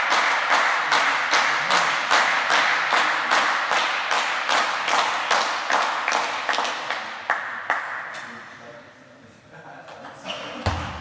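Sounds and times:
applause: 0.0s - 7.9s
spectators clapping in rhythm: 0.0s - 8.1s.

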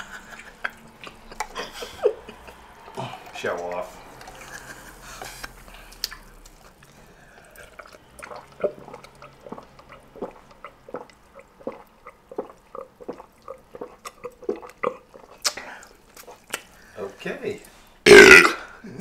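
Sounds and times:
woman gulping a drink: 4.2s - 16.5s.

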